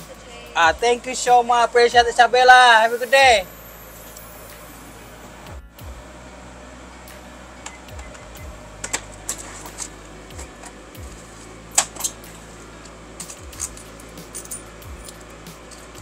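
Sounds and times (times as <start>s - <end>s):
steady low hum: 0.0s - 16.0s
utensils and containers clinking: 11.7s - 16.0s.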